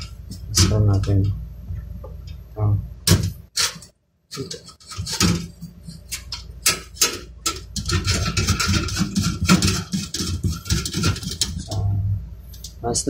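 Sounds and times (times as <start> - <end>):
hands handling metal computer case: 3.1 - 11.8.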